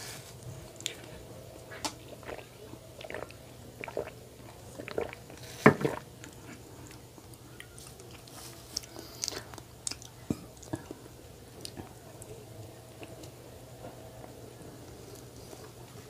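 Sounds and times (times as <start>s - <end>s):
drinking and swallowing: 0.8s - 7.0s.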